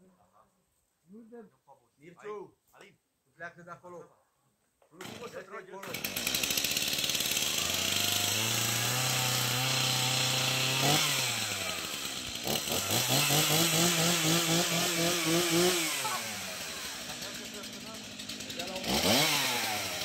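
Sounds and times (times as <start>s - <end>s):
chainsaw cutting wood: 5.0s - 20.0s.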